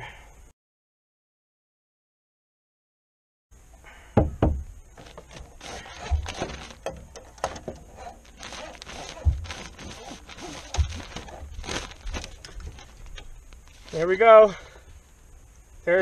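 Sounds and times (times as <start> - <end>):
wooden knocks and thumps: 4.2 - 13.2
rubbing and scraping: 5.0 - 14.4.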